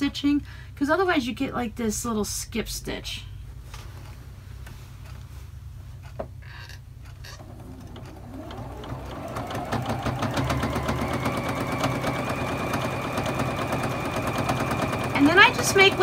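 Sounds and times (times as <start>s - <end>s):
sewing machine running: 7.3s - 16.0s.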